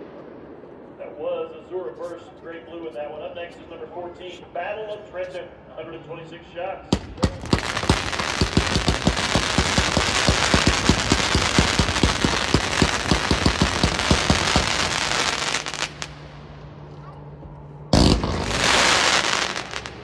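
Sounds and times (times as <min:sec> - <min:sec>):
fireworks firing rapid shots: 0:06.9 - 0:16.2, 0:18.0 - 0:20.0
fireworks crackle and hiss: 0:06.9 - 0:16.3, 0:18.0 - 0:20.0.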